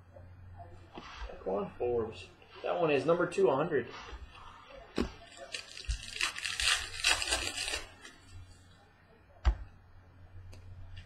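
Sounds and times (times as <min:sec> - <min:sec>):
cards being handled: 0:04.9 - 0:08.4
wrapper tearing and crinkling: 0:05.2 - 0:08.4.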